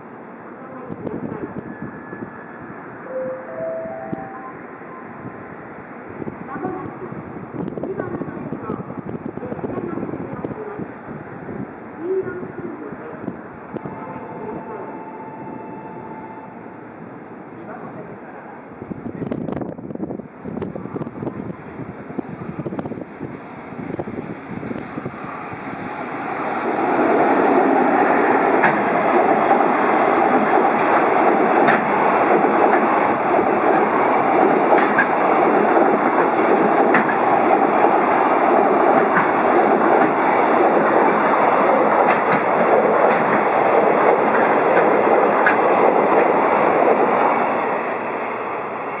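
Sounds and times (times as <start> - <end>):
train wheels rumbling on rails: 18.8 - 49.0.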